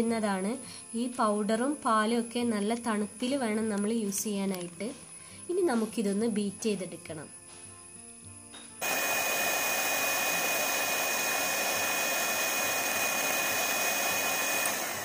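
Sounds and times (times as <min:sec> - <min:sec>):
electric hand mixer whirring: 0:08.8 - 0:15.0.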